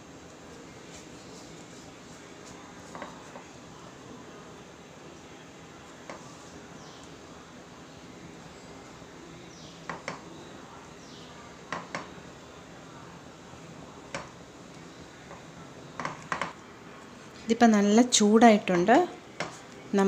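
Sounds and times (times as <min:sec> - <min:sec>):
steady low hiss: 0:00.0 - 0:20.0
spatula tapping against pan: 0:11.7 - 0:12.1.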